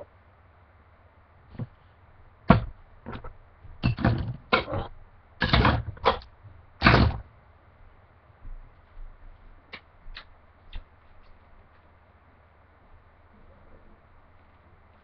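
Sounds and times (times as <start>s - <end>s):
objects knocking and clattering: 2.5s - 7.2s.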